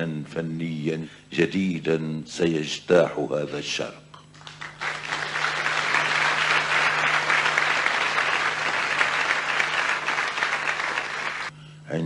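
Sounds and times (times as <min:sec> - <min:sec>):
audience applauding: 0:04.4 - 0:11.5.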